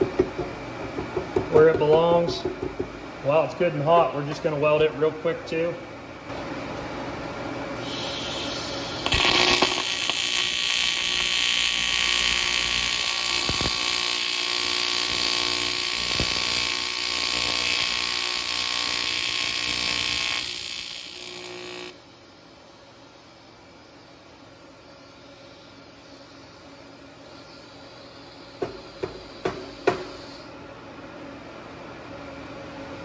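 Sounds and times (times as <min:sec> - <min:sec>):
welding arc buzzing: 0:07.8 - 0:22.0.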